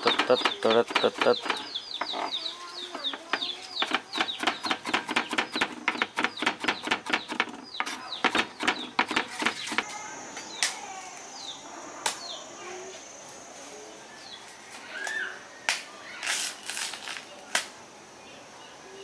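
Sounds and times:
sharp clicks and taps: 0.0s - 1.7s, 2.9s - 9.9s
chickens clucking: 0.0s - 9.9s
chicks peeping: 0.0s - 9.9s.

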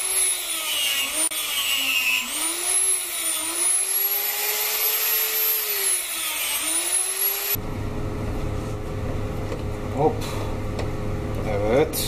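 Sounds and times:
die grinder whining into wood: 0.0s - 7.6s
low steady hum: 7.6s - 12.0s.

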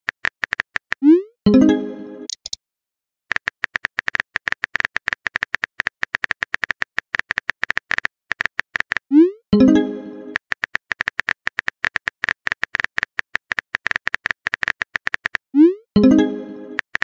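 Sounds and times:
phone keyboard typing clicks: 2.3s - 2.6s, 3.3s - 9.1s, 10.3s - 15.4s.

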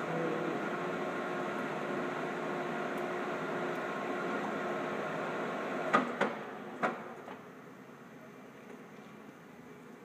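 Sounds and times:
drill press humming: 0.0s - 6.7s.

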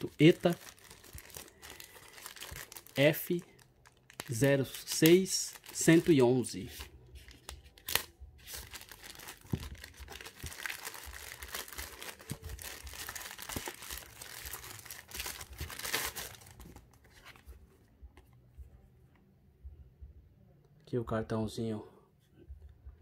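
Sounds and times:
plastic crinkling and rustling: 0.0s - 6.2s, 7.2s - 17.4s.

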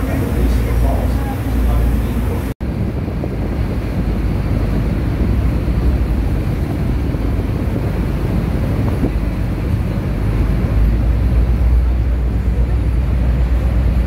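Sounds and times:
waterfall rushing: 0.0s - 2.6s
wind buffeting microphone: 0.0s - 14.0s.

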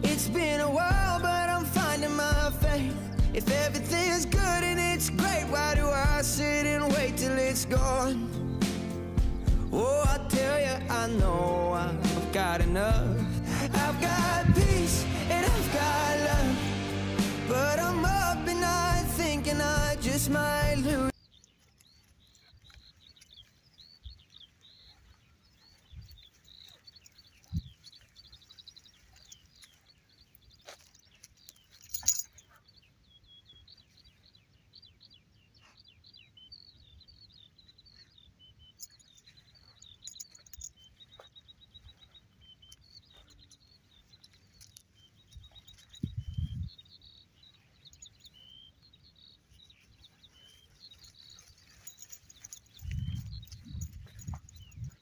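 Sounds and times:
birds chirping and trilling: 0.0s - 55.0s
low thuds: 14.2s - 15.7s.

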